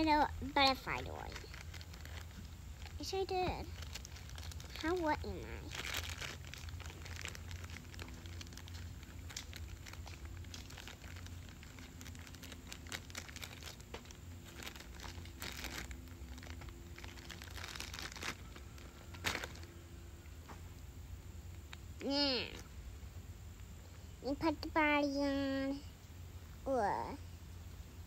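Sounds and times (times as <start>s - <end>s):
plastic packaging crinkling: 0.4s - 19.8s.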